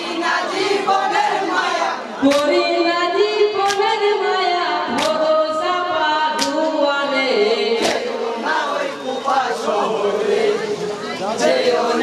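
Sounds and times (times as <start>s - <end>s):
sharp hand claps: 2.2s - 2.6s, 3.6s - 3.9s, 4.9s - 5.3s, 6.3s - 6.8s, 7.8s - 8.1s
men singing together: 7.3s - 12.0s.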